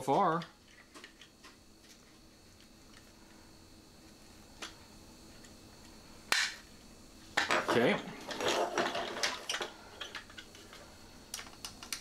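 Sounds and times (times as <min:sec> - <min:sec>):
plastic toy parts clicking: 0:11.3 - 0:12.0.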